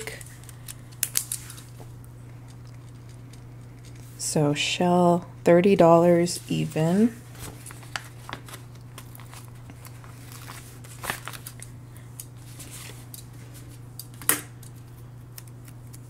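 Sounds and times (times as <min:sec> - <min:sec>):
stickers peeling and clicking: 0:00.0 - 0:04.0, 0:14.0 - 0:16.0
steady low hum: 0:00.0 - 0:16.0
paper rustling: 0:06.4 - 0:11.7, 0:12.4 - 0:13.8.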